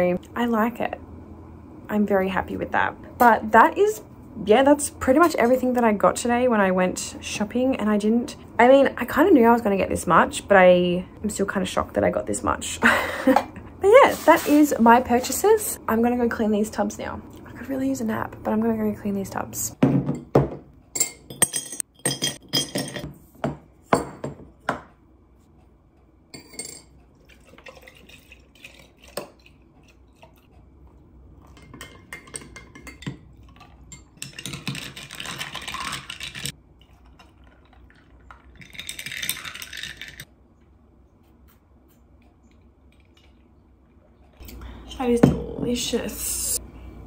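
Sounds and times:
liquid pouring: 27.2s - 29.6s, 33.6s - 40.2s
ice cubes clinking into glass jar: 38.6s - 40.2s.

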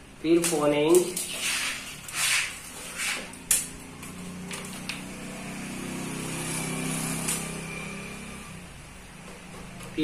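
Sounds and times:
passing vehicle engine hum: 3.4s - 9.0s.

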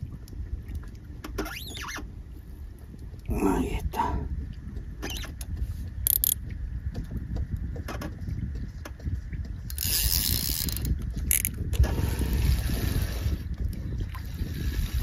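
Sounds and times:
steady low rumble: 2.1s - 15.0s
fishing reel grinding and clicking: 6.0s - 6.4s, 9.7s - 13.0s.

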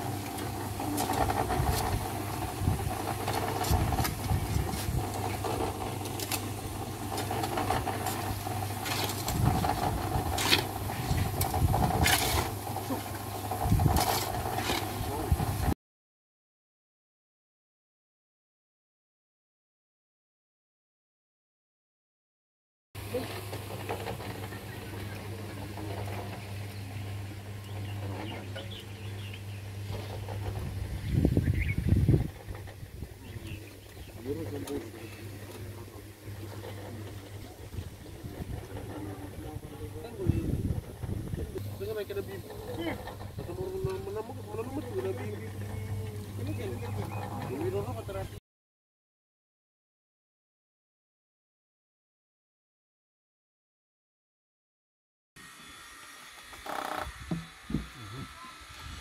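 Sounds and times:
concrete mixer humming: 0.0s - 15.8s, 23.0s - 48.4s, 55.4s - 59.0s
shovel scraping concrete: 7.2s - 13.0s
steady low hum: 55.4s - 59.0s.

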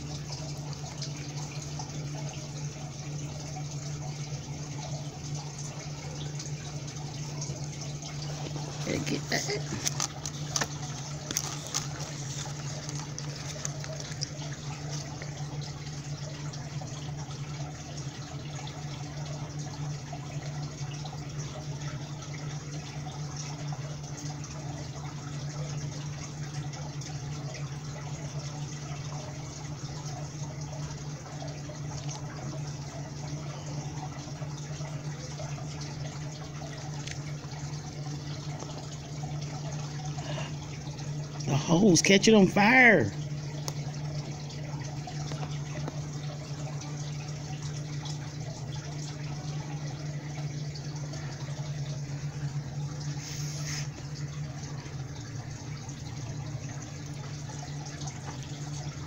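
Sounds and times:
low steady hum: 0.0s - 59.0s
fire hose spraying water: 53.1s - 54.0s.

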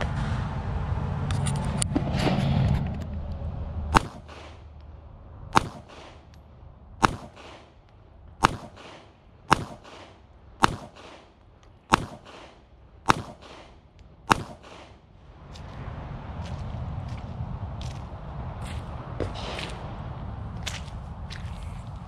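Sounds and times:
gunshot echo: 3.9s - 4.7s, 5.6s - 6.3s, 7.0s - 7.8s, 8.4s - 15.0s, 19.2s - 19.8s
pistol shots: 4.0s - 4.7s, 5.5s - 6.3s, 7.0s - 7.8s, 8.4s - 15.0s.

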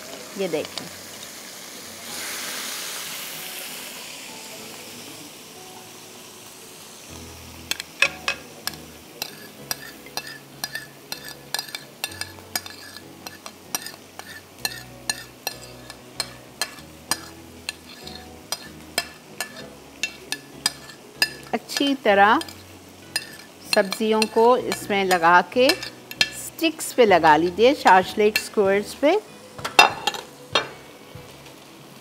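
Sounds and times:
meat sizzling in hot oil: 0.0s - 32.0s
spoon clinking ceramic bowl: 8.0s - 21.5s, 22.4s - 26.4s, 29.6s - 30.7s.

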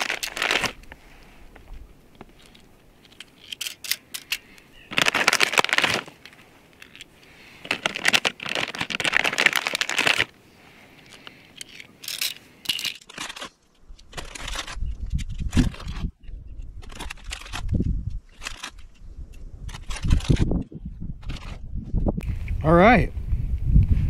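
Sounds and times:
plastic bag crinkling: 0.0s - 0.8s, 4.9s - 10.3s
rounds clicking into magazine: 2.2s - 4.7s, 10.9s - 15.9s.

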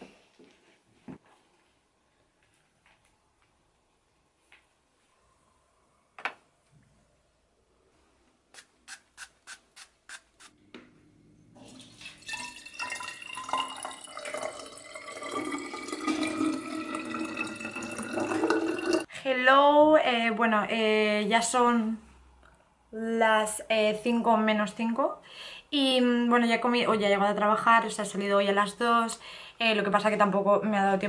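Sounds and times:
water pouring into glass bottle: 11.6s - 19.1s.

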